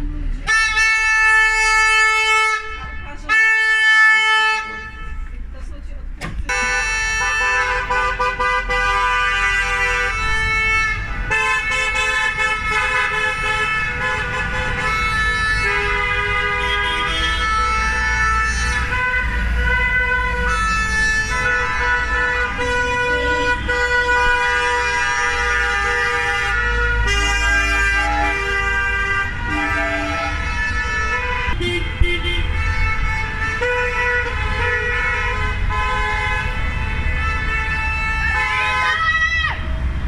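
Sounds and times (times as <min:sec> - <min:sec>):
car horns honking: 0:00.0 - 0:05.6, 0:06.2 - 0:39.8
car engines rumbling: 0:00.0 - 0:40.0.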